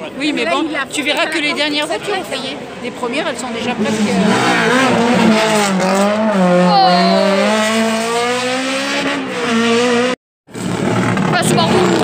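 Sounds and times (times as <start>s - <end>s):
rally car engine revving: 3.6s - 12.0s.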